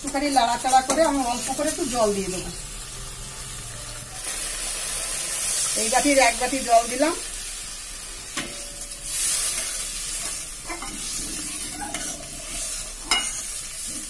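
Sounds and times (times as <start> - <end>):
sauce sizzling: 0.0 - 14.0
metal spatula scraping pan: 8.4 - 14.0
spatula clinking against pan: 13.1 - 13.5.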